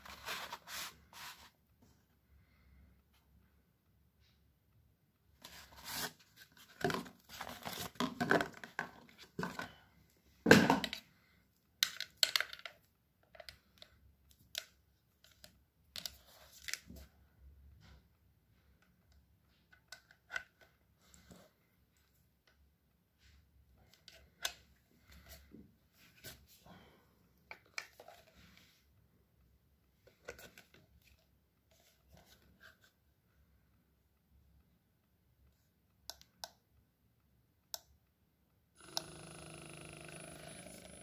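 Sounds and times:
cardboard scrape: 0.0 - 1.6, 5.4 - 8.0.

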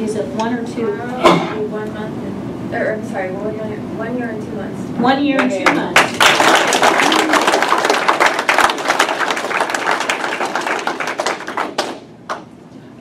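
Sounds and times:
audience applauding: 5.4 - 12.5.

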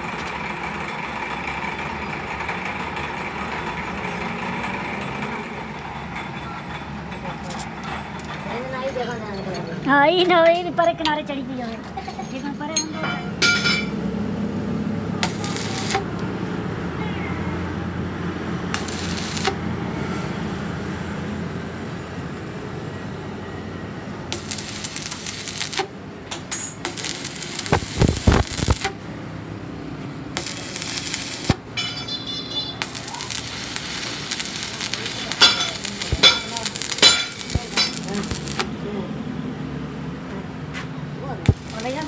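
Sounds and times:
welding arc crackling: 15.2 - 16.5, 18.5 - 19.9, 24.3 - 29.2, 30.3 - 31.8, 32.8 - 38.7, 41.4 - 42.0.

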